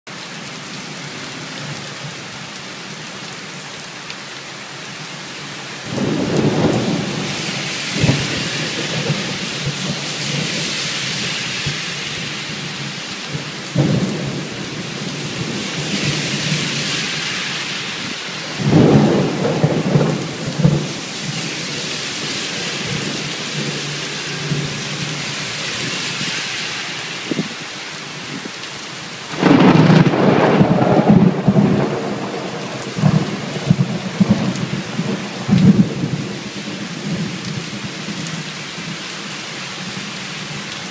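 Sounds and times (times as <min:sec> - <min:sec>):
heavy rain on pavement: 0:00.1 - 0:40.9
water pouring off roof: 0:04.9 - 0:40.9
thunder rumbling: 0:05.9 - 0:24.8, 0:29.3 - 0:37.6.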